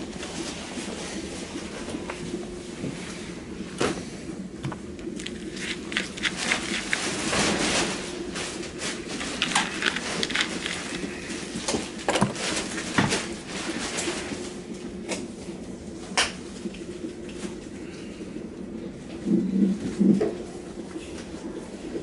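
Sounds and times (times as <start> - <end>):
steady low hum: 0.0 - 22.0
objects being handled: 4.6 - 14.1.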